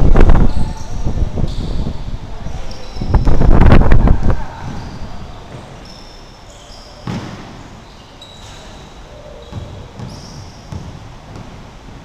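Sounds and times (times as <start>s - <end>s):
sneaker squeaks: 0.2s - 3.5s, 4.5s - 11.7s
basketball bouncing: 7.0s - 7.6s, 9.5s - 11.6s.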